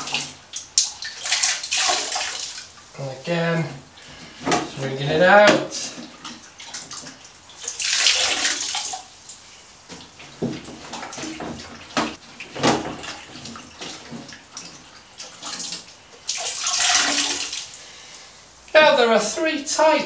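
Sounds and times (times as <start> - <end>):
water sloshing: 0.0 - 2.9, 3.7 - 17.9
water splashing into toilet bowl: 0.0 - 2.9, 4.2 - 9.2, 9.9 - 17.8.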